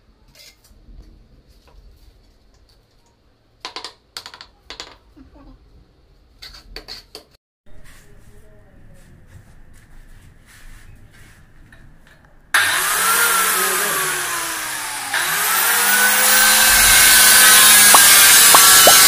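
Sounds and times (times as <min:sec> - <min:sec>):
tile cutter motor whining: 0:12.6 - 0:19.0.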